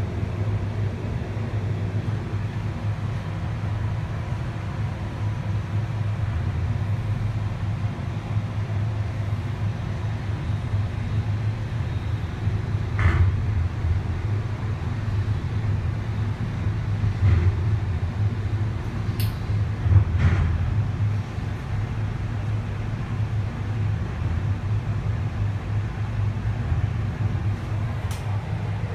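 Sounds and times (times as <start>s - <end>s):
low hum in gondola: 0.0s - 28.9s
gondola knocks and creaks: 17.0s - 18.3s, 19.0s - 21.2s.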